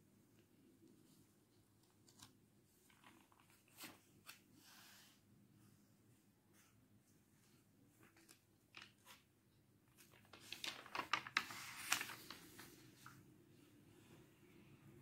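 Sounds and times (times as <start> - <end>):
paper crinkling: 1.8 - 4.4, 8.0 - 9.2, 9.9 - 13.1.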